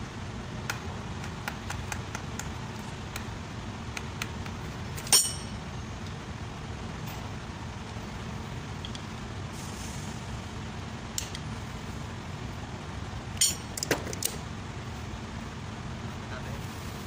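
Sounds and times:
steady low hum: 0.0 - 17.0
loud metallic clank: 5.0 - 5.6.

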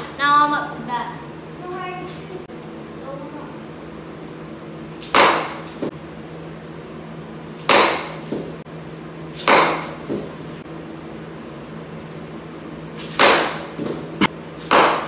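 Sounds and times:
steady low hum: 0.0 - 15.0
bat cracking ball: 5.0 - 5.9, 7.6 - 8.5, 9.4 - 10.3, 13.0 - 15.0.

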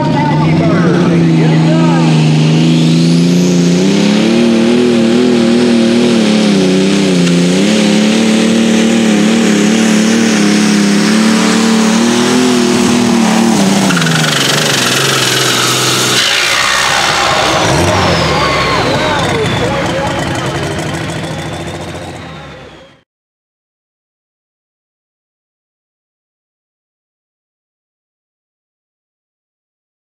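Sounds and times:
pulling tractor engine at full power: 0.0 - 23.0.

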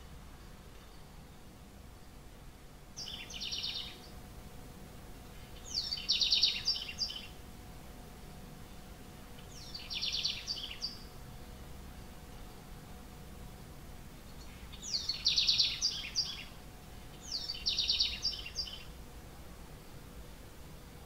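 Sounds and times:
wren singing trilled notes: 2.9 - 4.2, 5.3 - 7.4, 8.7 - 11.2, 14.2 - 19.0.

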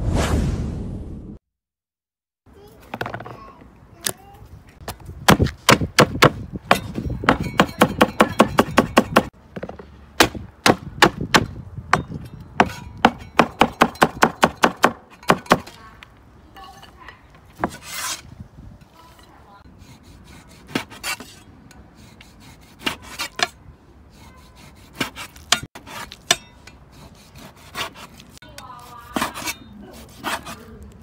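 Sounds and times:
cleaver chopping on wooden board: 5.2 - 9.3, 10.2 - 15.8, 24.5 - 26.4.

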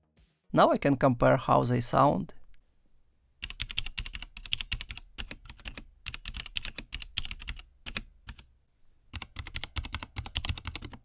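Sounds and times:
mechanical keyboard typing: 3.4 - 8.5, 9.1 - 11.0.

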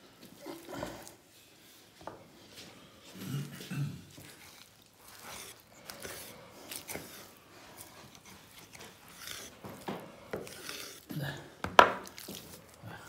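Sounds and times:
knife knocking and scraping: 8.5 - 12.4.

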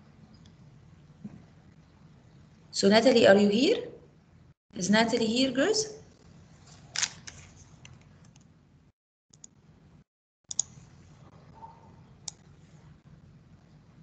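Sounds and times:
mouse and keyboard clicks: 10.5 - 10.7.

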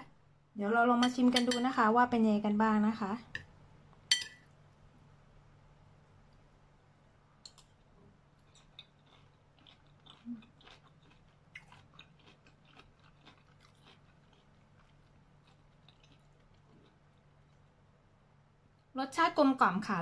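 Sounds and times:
low steady hum: 0.0 - 20.0
person chewing food: 7.5 - 17.9.

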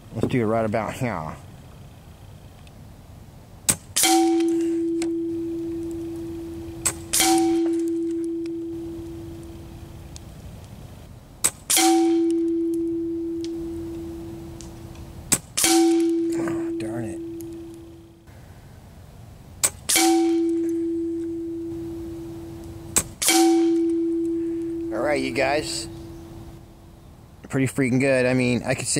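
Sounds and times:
air rifle shots: 3.7 - 9.6, 11.4 - 14.6, 15.3 - 18.0, 19.6 - 21.2, 21.8 - 25.0
ringing tone: 4.1 - 9.6, 11.8 - 14.5, 15.7 - 18.2, 20.1 - 22.6, 23.3 - 26.1.

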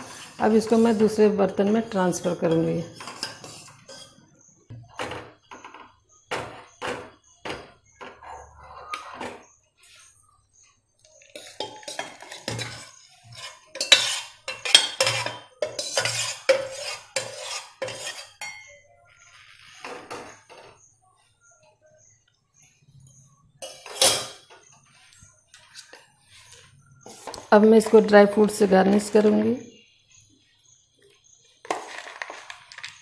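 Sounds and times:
metal spoon scraping a pot: 0.0 - 4.5, 11.2 - 20.8, 23.6 - 29.4.

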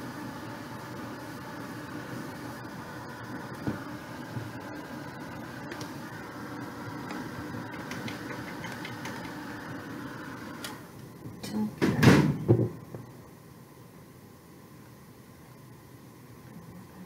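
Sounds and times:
heat gun running: 0.0 - 11.1.

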